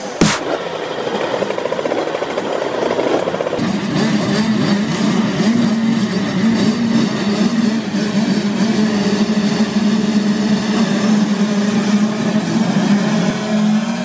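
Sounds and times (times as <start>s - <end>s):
motocross bikes revving: 3.6s - 14.0s.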